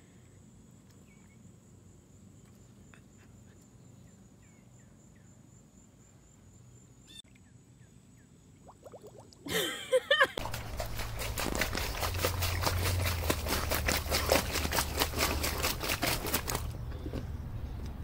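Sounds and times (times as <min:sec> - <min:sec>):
faint bird chirps: 0:01.0 - 0:01.5, 0:02.9 - 0:05.4, 0:07.0 - 0:08.4.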